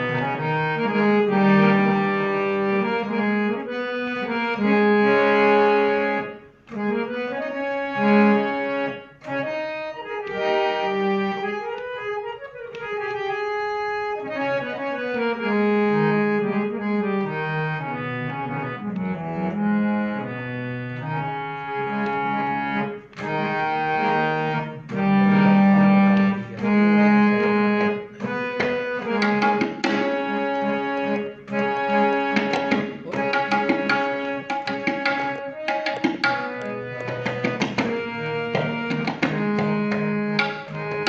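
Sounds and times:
harmonium melody: 0.0 - 41.0
tabla strokes: 32.3 - 41.0.

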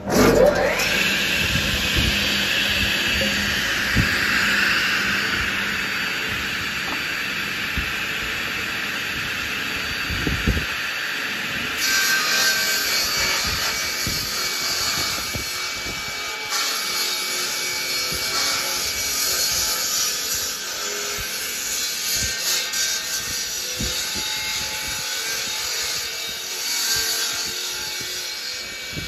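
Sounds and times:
woodworking machine running: 0.0 - 12.7
cutter cutting wood: 0.0 - 25.1.

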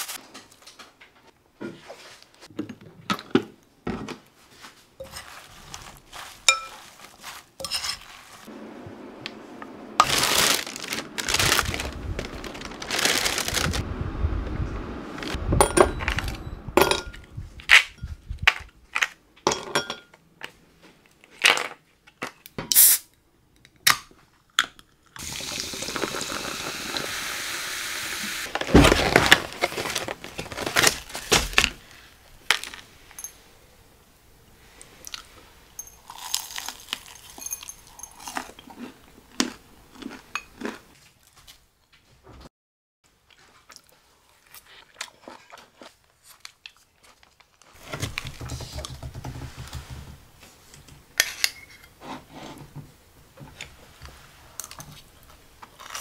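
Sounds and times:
metal spoon clinking glass bowl: 6.5 - 6.8, 35.8 - 36.4, 37.1 - 38.2
liquid pouring: 25.2 - 27.2.

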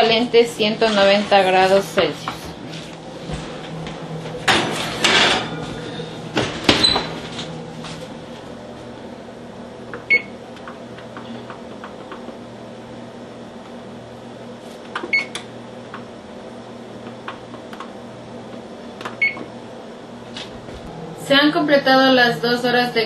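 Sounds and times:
steady low hum: 0.0 - 23.0
oven control panel beeping: 6.7 - 7.2, 10.0 - 10.4, 15.0 - 15.6, 19.0 - 19.6.

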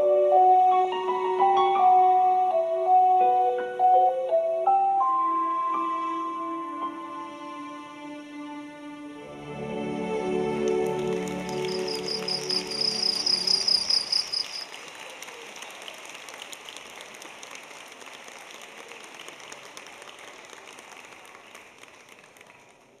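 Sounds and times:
audience applause: 10.7 - 13.2, 14.2 - 23.0
cricket chirp trill: 11.5 - 14.8.

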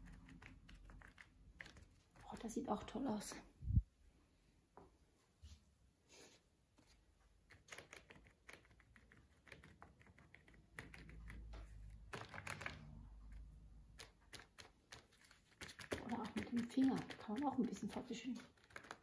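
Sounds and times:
fingertips tapping paint on paper: 0.0 - 2.6, 6.8 - 19.0.

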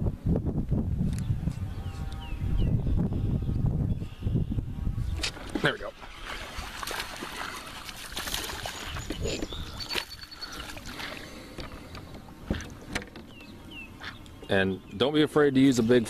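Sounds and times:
water splashing and sloshing: 5.2 - 14.4.

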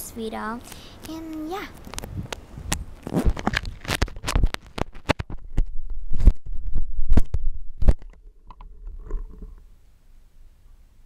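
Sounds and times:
irregular knocks and thumps: 3.3 - 9.6.

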